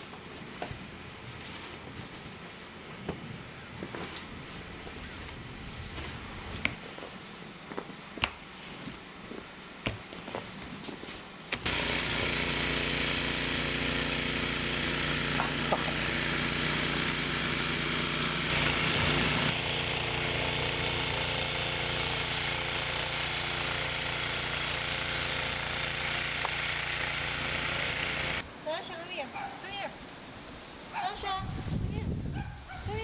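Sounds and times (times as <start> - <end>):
snowblower engine running: 11.6 - 28.4.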